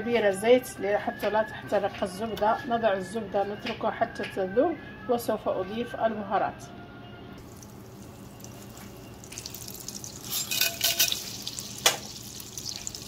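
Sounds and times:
fat sizzling and crackling in a pot: 7.4 - 13.0.

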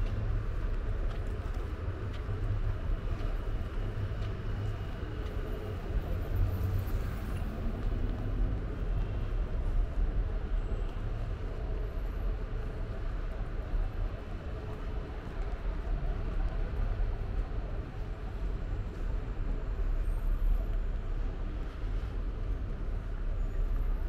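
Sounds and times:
traffic rumble: 0.0 - 24.0.

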